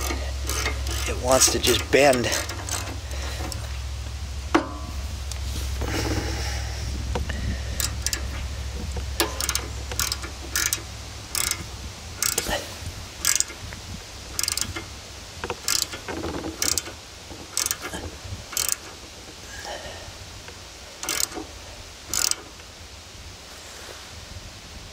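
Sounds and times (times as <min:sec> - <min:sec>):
socket ratchet clicking: 0:00.0 - 0:03.7, 0:07.7 - 0:08.4, 0:09.0 - 0:12.5, 0:13.2 - 0:13.7, 0:14.3 - 0:19.0, 0:21.0 - 0:21.5, 0:22.1 - 0:22.6.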